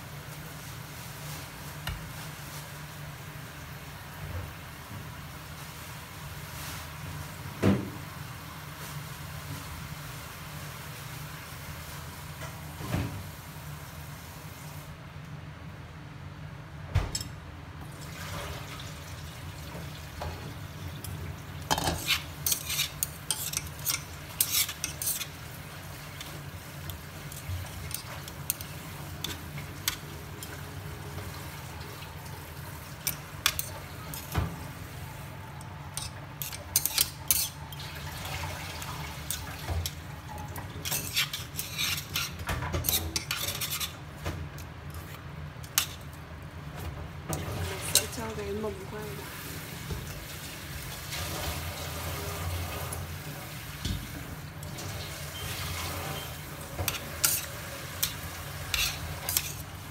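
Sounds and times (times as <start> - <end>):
metal spoon scraping a pot: 21.7 - 25.4, 35.9 - 37.8, 40.8 - 44.0, 56.2 - 59.8.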